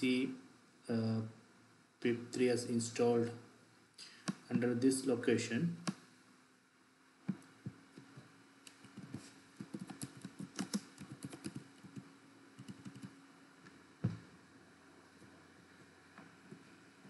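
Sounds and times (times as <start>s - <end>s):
faint steady hum: 0.0s - 17.0s
typing on computer keyboard: 8.8s - 13.2s.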